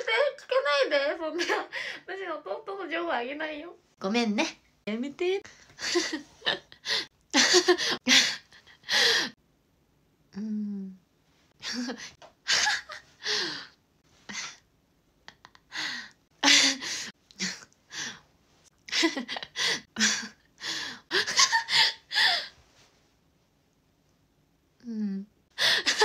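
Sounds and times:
woman laughing and gasping: 5.6s - 9.4s, 11.6s - 13.7s, 18.9s - 22.6s, 25.6s - 26.0s.

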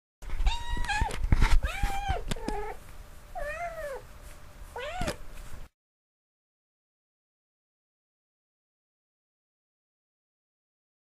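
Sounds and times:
cat meowing: 0.4s - 2.8s, 3.4s - 4.0s, 4.8s - 5.2s.

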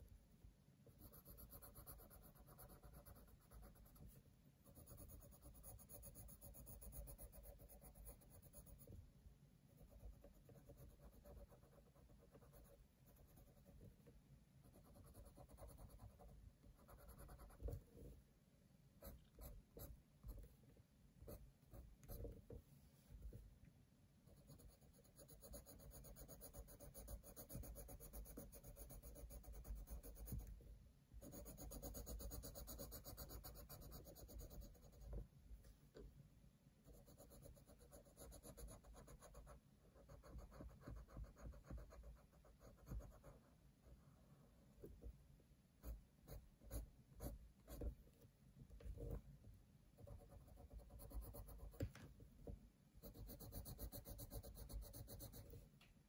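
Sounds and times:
pencil scratching on paper: 0.8s - 9.0s, 9.7s - 14.0s, 14.6s - 18.2s, 19.0s - 20.6s, 21.3s - 22.5s, 24.3s - 30.6s, 31.2s - 35.2s, 36.8s - 44.0s, 45.8s - 48.0s, 50.0s - 52.0s, 53.0s - 55.6s.

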